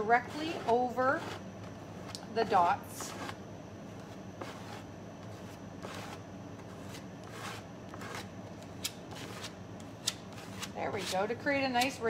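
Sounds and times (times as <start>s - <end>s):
card scraping paste on stencil: 0.2s - 1.4s, 4.0s - 11.9s.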